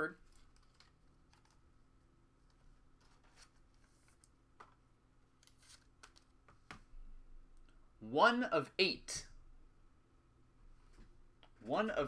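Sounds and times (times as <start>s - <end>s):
trading cards clicking and rustling: 0.2s - 1.6s.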